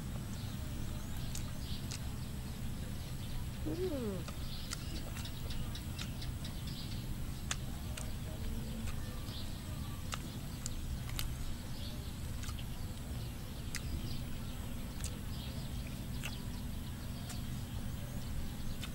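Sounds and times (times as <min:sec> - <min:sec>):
steady low rumble: 0:00.0 - 0:18.9
person chewing: 0:01.2 - 0:02.0, 0:03.7 - 0:06.2, 0:07.4 - 0:09.1, 0:10.1 - 0:11.4, 0:12.3 - 0:13.1, 0:13.7 - 0:14.0, 0:15.0 - 0:15.2, 0:15.8 - 0:16.4.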